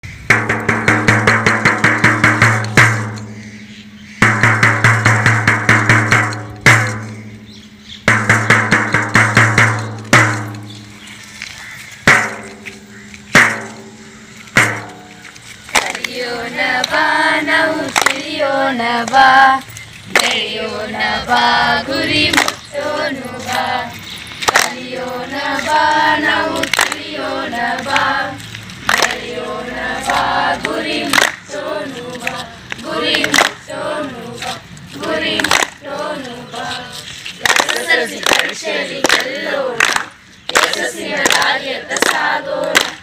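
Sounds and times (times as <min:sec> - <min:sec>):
sharp hand claps: 0:15.7 - 0:16.2, 0:17.9 - 0:18.2, 0:22.3 - 0:22.6, 0:24.4 - 0:24.8, 0:26.6 - 0:27.0, 0:28.8 - 0:29.2, 0:31.1 - 0:31.4, 0:33.1 - 0:33.6, 0:35.4 - 0:35.8, 0:37.4 - 0:43.0
group singing together: 0:15.7 - 0:43.0.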